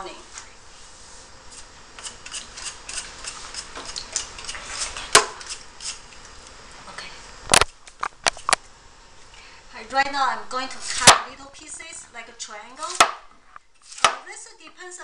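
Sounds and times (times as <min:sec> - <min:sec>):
blade scraping yam skin: 0:01.5 - 0:06.0.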